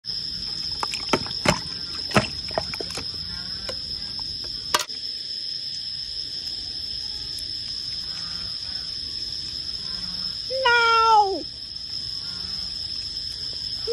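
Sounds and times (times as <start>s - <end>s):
water splashing: 0.3s - 4.4s.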